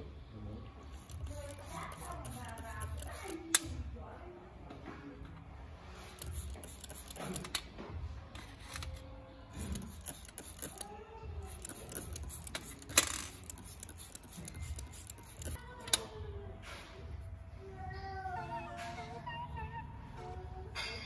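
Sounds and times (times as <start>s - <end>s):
spray bottle squirts: 1.0s - 3.4s, 6.0s - 7.4s, 9.6s - 10.8s, 11.5s - 15.6s.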